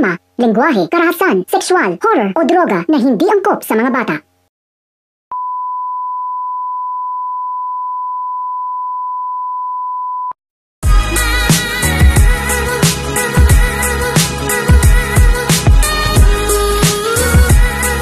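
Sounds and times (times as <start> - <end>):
steady test tone beep: 5.3 - 10.4
loud music with heavy bass beat: 10.8 - 18.0.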